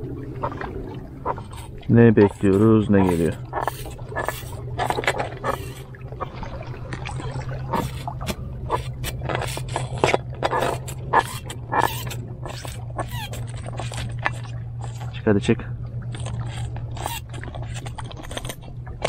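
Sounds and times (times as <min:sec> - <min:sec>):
steady low hum: 0:00.0 - 0:19.0
stones and gravel scraping: 0:01.2 - 0:05.9, 0:07.7 - 0:15.1.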